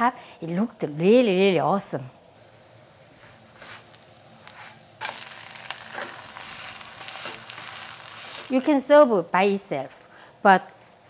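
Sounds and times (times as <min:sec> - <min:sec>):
pancake sizzling in oil: 0:02.4 - 0:08.6.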